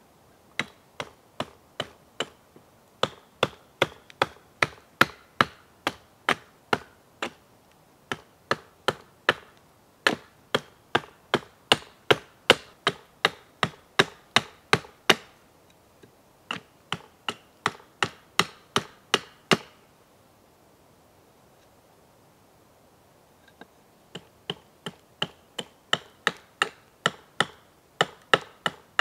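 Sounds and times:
axe chopping wood: 0.6s - 2.4s, 3.0s - 7.4s, 8.1s - 15.3s, 16.5s - 19.7s, 24.2s - 28.8s.

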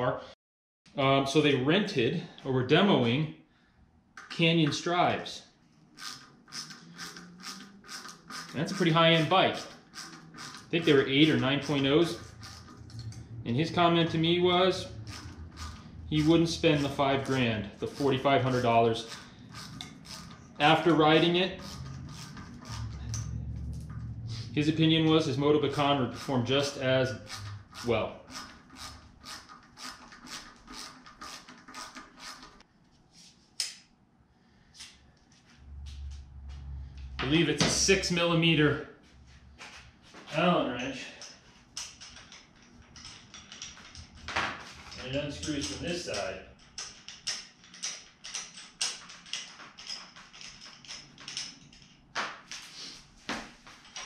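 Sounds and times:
allen wrench clicking and tapping: 6.0s - 13.2s, 15.0s - 20.7s, 21.6s - 23.9s, 41.2s - 52.0s
bike hub rasping clicks: 6.0s - 13.3s, 14.9s - 24.0s, 25.7s - 32.6s.

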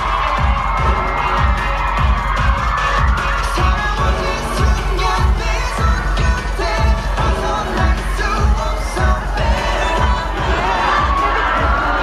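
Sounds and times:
pop song with singing and drums: 0.0s - 12.0s.

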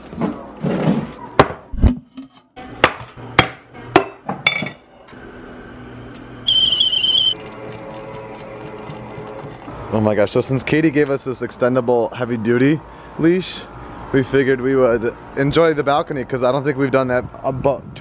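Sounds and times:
stovetop kettle whistling: 6.4s - 7.6s.

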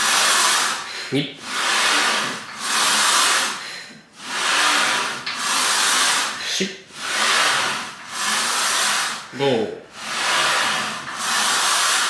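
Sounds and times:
heavy hissing breathing: 0.0s - 9.3s.

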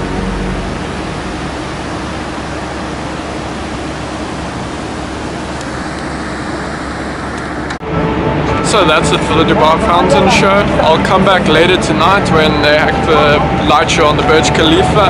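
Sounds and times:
fountain water jets spraying: 0.0s - 7.6s.

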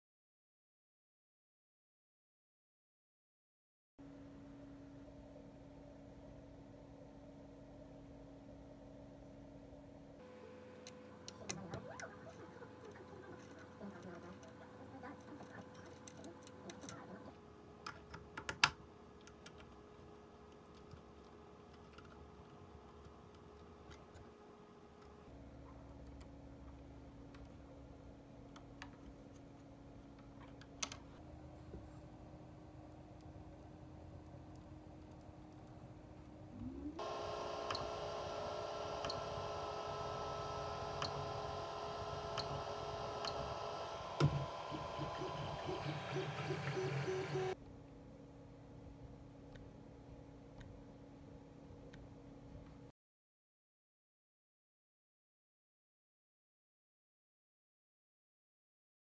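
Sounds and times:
faint steady hum: 4.0s - 52.9s
printer fans humming: 10.2s - 17.8s, 37.0s - 47.6s
stepper motor whirring: 36.5s - 47.6s.

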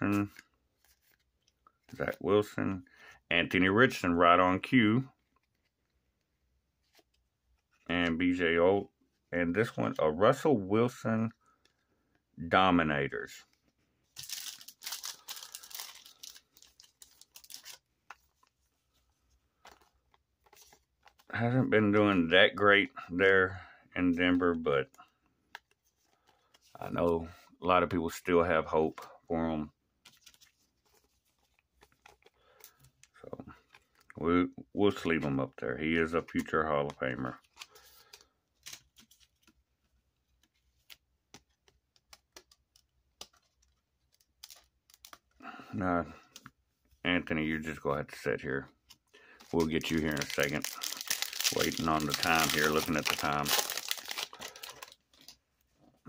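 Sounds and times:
plastic sleeve crinkling: 14.1s - 18.7s, 48.9s - 55.8s.

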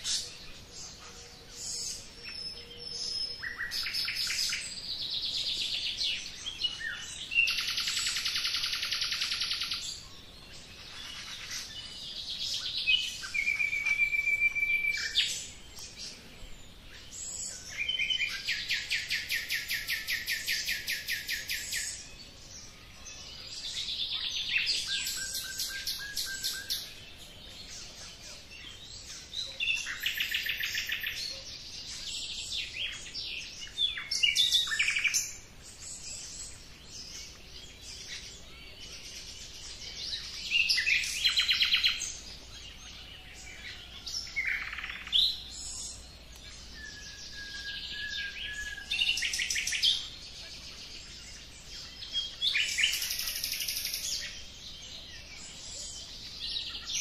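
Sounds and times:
birds singing trills and whistles: 0.0s - 57.0s.

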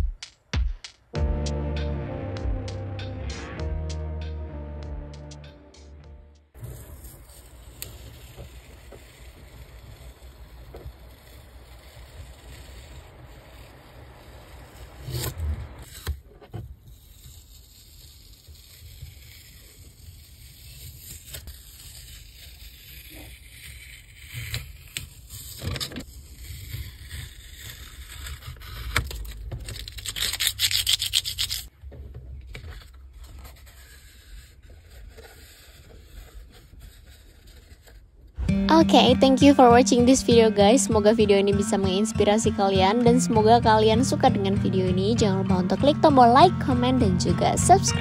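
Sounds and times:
tape peeling off paper: 6.6s - 31.7s, 32.6s - 38.3s
paper rustling: 32.4s - 38.3s.

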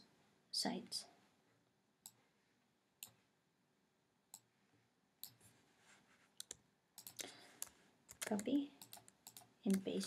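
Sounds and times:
computer mouse clicking: 6.4s - 10.0s.

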